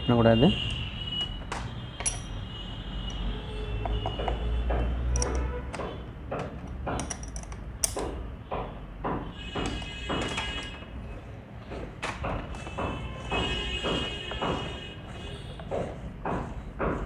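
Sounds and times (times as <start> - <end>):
hand tool clicking on a nut: 5.2 - 5.4, 6.5 - 8.1.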